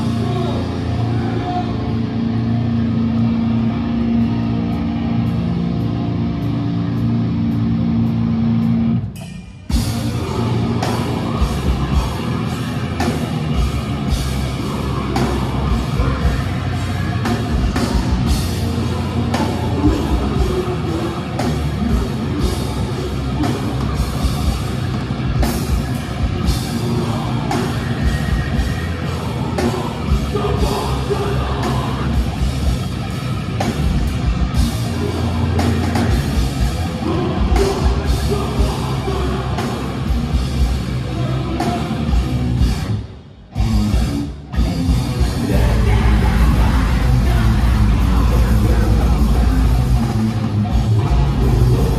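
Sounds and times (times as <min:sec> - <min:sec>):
metalcore band playing live: 0:00.0 - 0:51.9.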